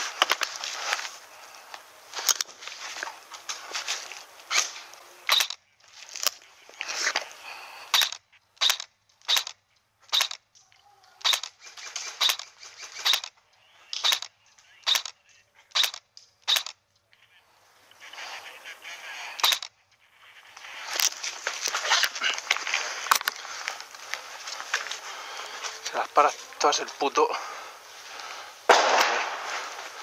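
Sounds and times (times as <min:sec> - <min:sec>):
airsoft gun shots: 0:05.3 - 0:05.6, 0:07.9 - 0:10.4, 0:11.2 - 0:13.3, 0:14.0 - 0:15.1, 0:15.7 - 0:16.8, 0:28.6 - 0:29.7.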